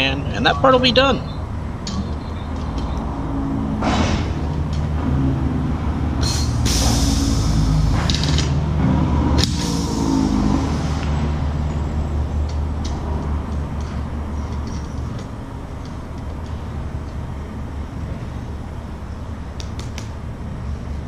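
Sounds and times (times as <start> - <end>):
rivet gun hissing air blasts: 6.2 - 7.8, 9.4 - 10.9.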